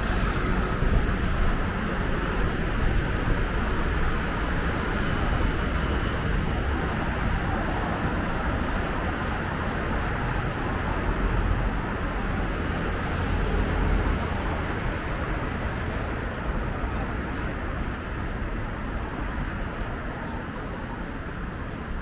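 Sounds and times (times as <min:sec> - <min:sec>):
road traffic passing: 0:00.0 - 0:22.0.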